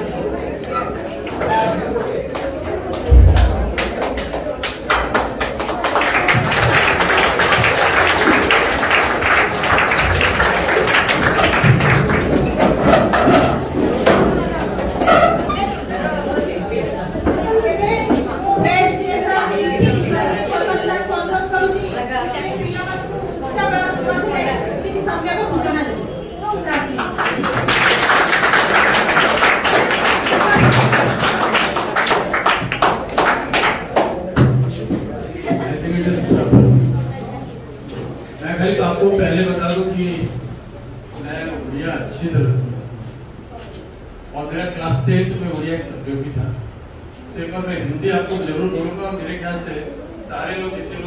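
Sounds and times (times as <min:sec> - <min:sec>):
children clapping: 0:02.3 - 0:14.8, 0:26.7 - 0:34.4
audience applauding: 0:03.7 - 0:13.3, 0:26.8 - 0:34.2.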